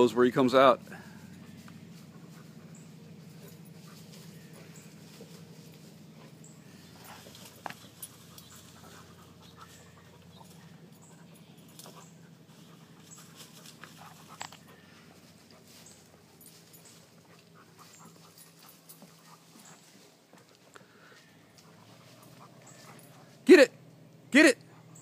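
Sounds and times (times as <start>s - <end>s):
dog panting: 0.9s - 20.7s, 21.5s - 23.4s
leaves rustling: 12.0s - 22.9s.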